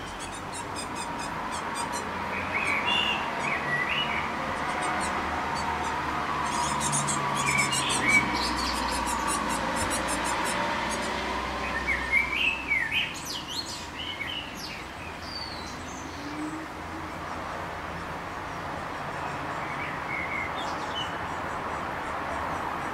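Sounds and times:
birds chirping: 0.0s - 22.9s.

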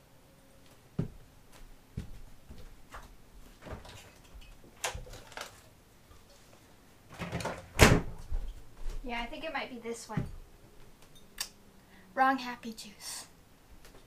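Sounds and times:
knocks of rummaging through cabinets: 7.1s - 8.4s.

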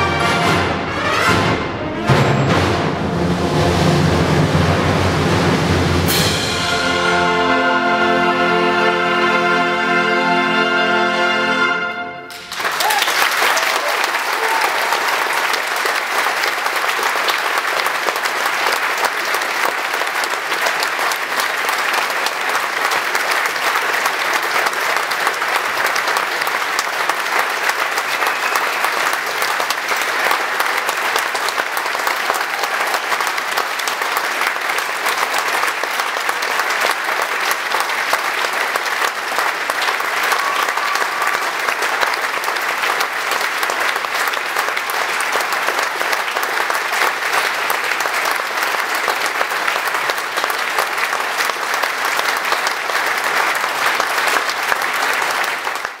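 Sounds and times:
audience applauding: 12.3s - 56.0s.

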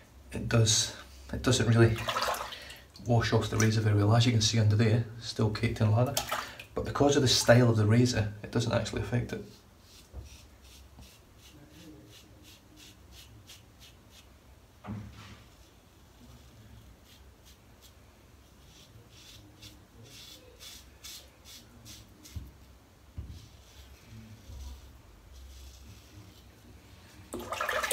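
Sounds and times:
soft knock: 14.8s - 15.4s, 23.2s - 23.5s.

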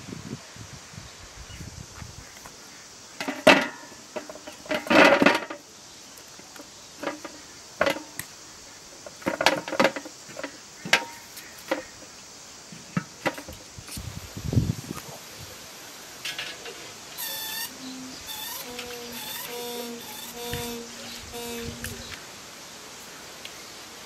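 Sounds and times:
cauliflowers clanking into metal pot: 3.2s - 5.6s.

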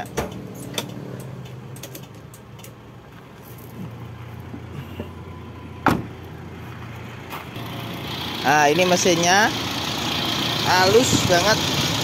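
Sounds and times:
car engine idling: 3.7s - 12.0s.

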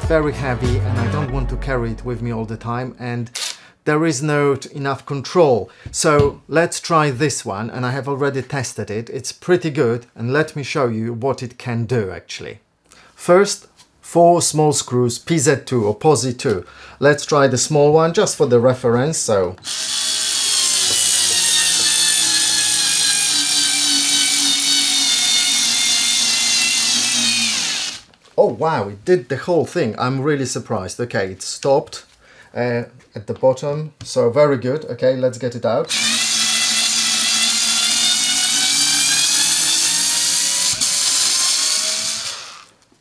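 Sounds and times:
cordless screwdriver motor whine: 19.6s - 28.0s, 35.9s - 42.7s.

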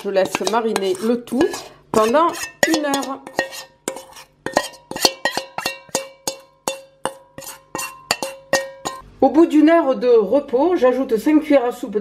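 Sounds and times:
metal spoon clinking in bowl: 0.0s - 9.0s.

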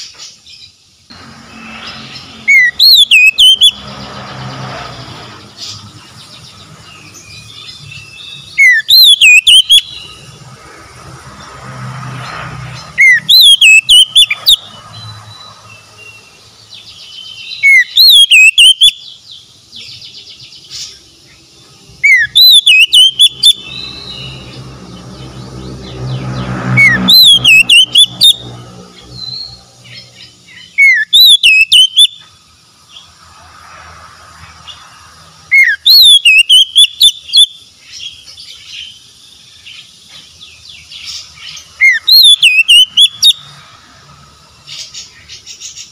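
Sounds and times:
bird singing whistled phrases: 2.5s - 3.8s, 7.3s - 10.2s, 13.0s - 14.6s, 17.0s - 19.1s, 22.0s - 24.5s, 26.8s - 28.5s, 30.6s - 32.2s, 35.5s - 37.6s, 41.8s - 43.4s.

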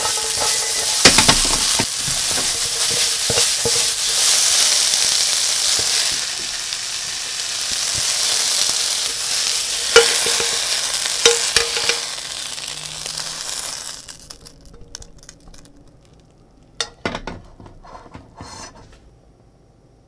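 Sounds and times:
onions sizzling in a frying pan: 0.0s - 17.0s
sharp knocks and scrape: 16.8s - 19.1s.

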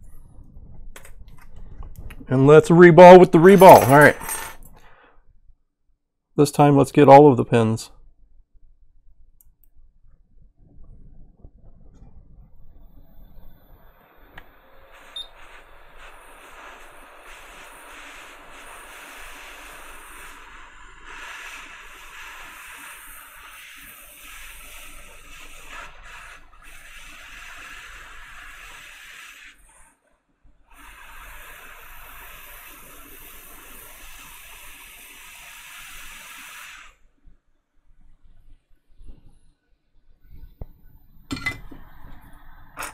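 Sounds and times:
hot air blower hissing: 13.6s - 29.8s, 30.7s - 37.0s.

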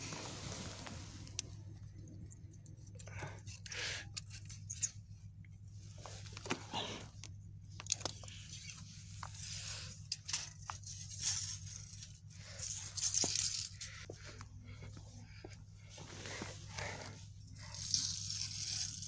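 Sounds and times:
steady low hum: 0.0s - 19.0s
crunching and scraping on gravel: 7.9s - 14.2s.

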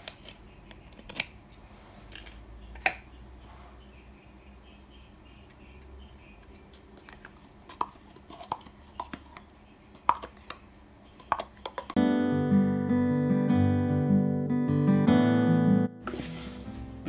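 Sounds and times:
strummed acoustic guitar music: 12.0s - 17.0s.

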